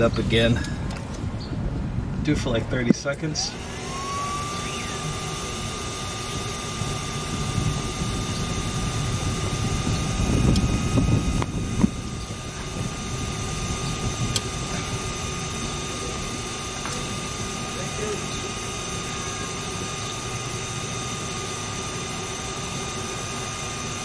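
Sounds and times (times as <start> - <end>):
gas torch flame burning: 3.5 - 24.0
thin steady whistle: 3.7 - 11.0.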